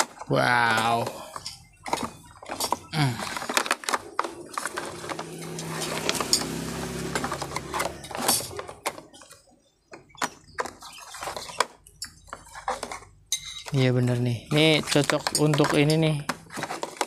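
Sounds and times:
plastic drawers clicking: 0:00.0 - 0:09.4, 0:14.6 - 0:17.0.

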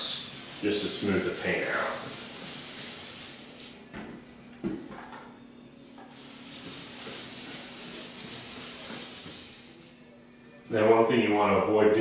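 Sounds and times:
paint roller hissing on wall: 0:00.0 - 0:03.8, 0:06.1 - 0:09.9.

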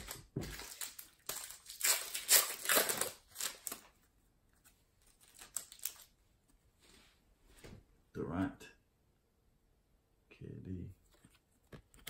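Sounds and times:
plastic wrapper crinkling: 0:00.0 - 0:06.1.

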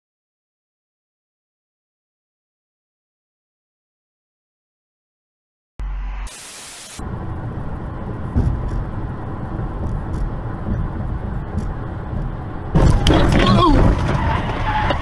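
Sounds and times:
car road and engine noise: 0:05.8 - 0:15.0
static hiss: 0:06.1 - 0:07.0.

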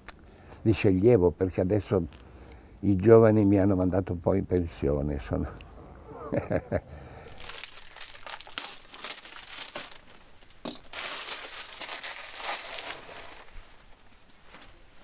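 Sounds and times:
pages leafed through: 0:07.3 - 0:14.7
paper rustling: 0:07.3 - 0:14.7.

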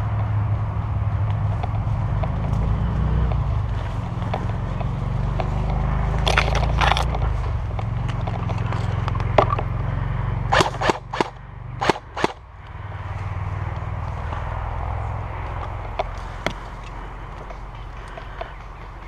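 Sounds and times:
footsteps through undergrowth: 0:01.0 - 0:09.8, 0:12.7 - 0:19.0
sharp cracks: 0:04.2 - 0:09.7, 0:10.5 - 0:12.4.

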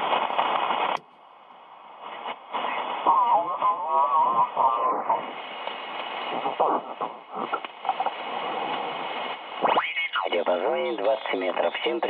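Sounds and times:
hissy radio voice: 0:02.5 - 0:05.5, 0:09.6 - 0:12.0.

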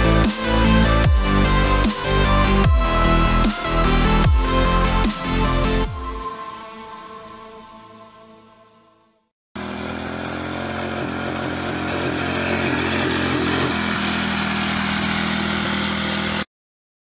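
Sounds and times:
lawnmower engine running steadily: 0:09.6 - 0:16.5.

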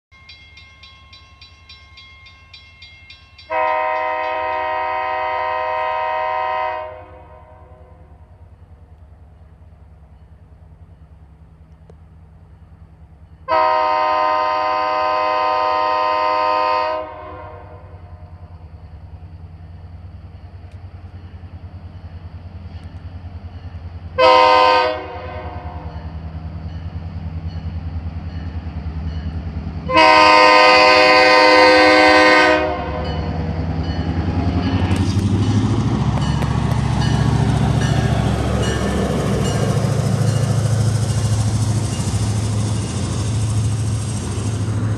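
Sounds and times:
train wheels clattering on rails: 0:00.3 - 0:04.9, 0:33.0 - 0:44.9
locomotive engine rumble: 0:00.6 - 0:44.9
locomotive horn blasts: 0:03.5 - 0:08.1, 0:13.5 - 0:18.2, 0:24.2 - 0:26.0, 0:29.8 - 0:33.4.

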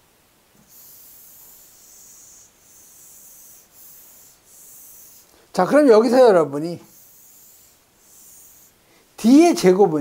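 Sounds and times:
eraser rubbing on whiteboard: 0:00.7 - 0:05.3, 0:06.8 - 0:08.8.

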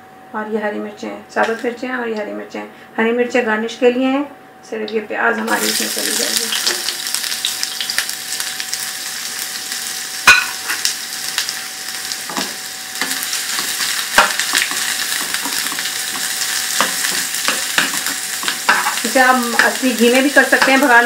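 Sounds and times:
onions sizzling in hot oil: 0:05.4 - 0:21.0
wooden spoon knocking on pan: 0:13.1 - 0:19.8.

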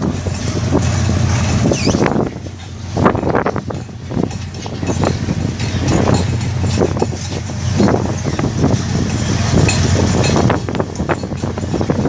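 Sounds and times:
low engine hum: 0:00.0 - 0:12.0.

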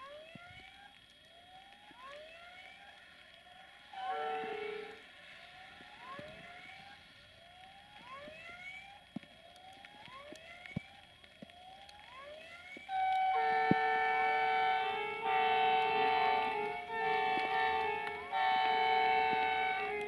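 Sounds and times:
level crossing warning tone: 0:03.5 - 0:06.9, 0:11.6 - 0:20.0
train horn: 0:04.0 - 0:05.0, 0:12.9 - 0:20.0.

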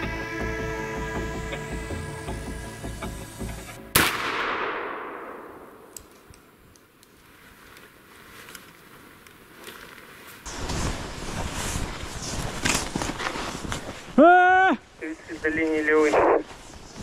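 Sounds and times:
gunshot echoing: 0:03.9 - 0:06.0.

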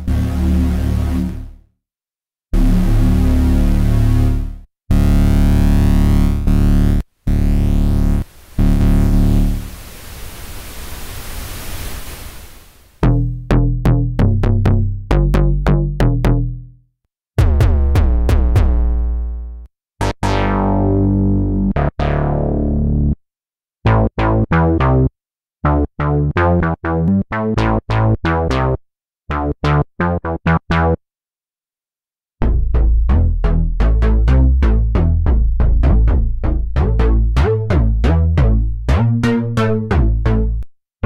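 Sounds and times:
synthesizer bass notes: 0:00.0 - 0:01.7, 0:02.6 - 0:09.8, 0:13.0 - 0:16.8, 0:17.4 - 0:23.2, 0:23.9 - 0:31.0, 0:32.4 - 0:40.7
hissy synth noise sweep: 0:08.0 - 0:13.0.

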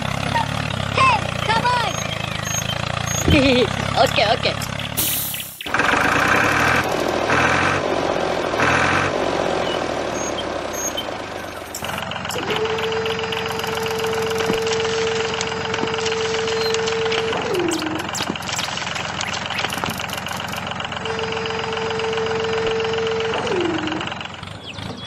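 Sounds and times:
hydraulic tipper whine: 0:00.0 - 0:25.0
tractor engine clattering: 0:00.0 - 0:25.0.

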